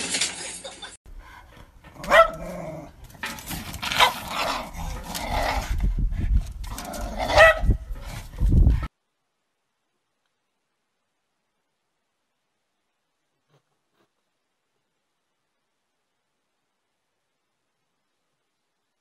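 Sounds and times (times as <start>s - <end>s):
dog growling: 1.8s - 3.0s, 3.7s - 5.9s, 6.6s - 8.3s
dog barking: 2.0s - 2.8s, 3.9s - 4.8s, 7.2s - 7.8s.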